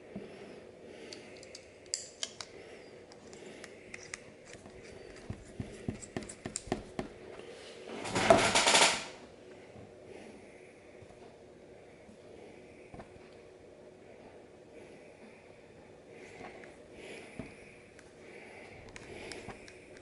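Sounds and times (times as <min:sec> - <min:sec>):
metal caps clicking together: 0:01.1 - 0:05.3.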